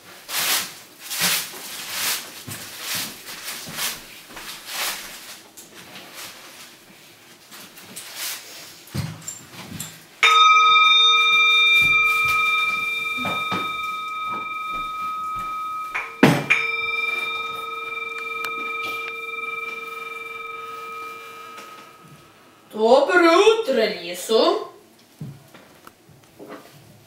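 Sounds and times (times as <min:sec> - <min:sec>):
bell ringing: 0:10.2 - 0:22.7.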